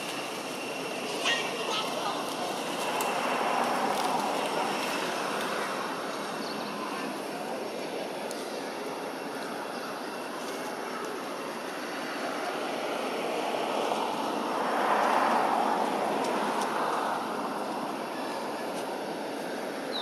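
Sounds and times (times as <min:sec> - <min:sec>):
passing vehicle rushing: 0:02.2 - 0:07.1, 0:12.1 - 0:19.8.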